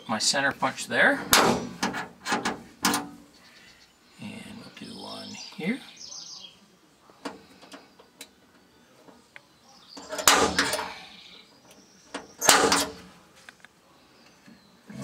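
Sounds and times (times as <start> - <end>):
sharp clattering knocks: 1.2 - 3.2, 10.0 - 11.0, 12.2 - 13.0.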